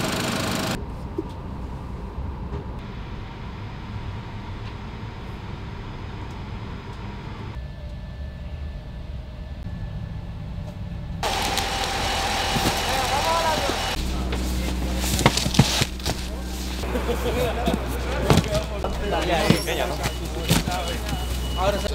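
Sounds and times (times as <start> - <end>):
airliner cabin rumble: 0.6 - 21.9.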